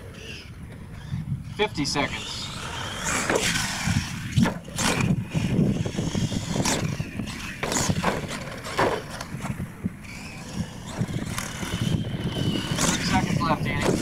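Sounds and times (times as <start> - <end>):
toy truck motor whining: 0.0 - 14.0
wheels thumping on dirt: 6.6 - 13.0.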